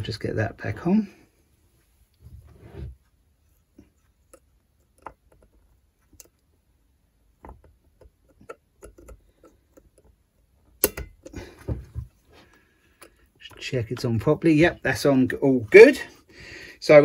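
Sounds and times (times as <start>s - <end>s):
small metal clicks and taps: 4.2s - 6.5s, 7.4s - 11.4s.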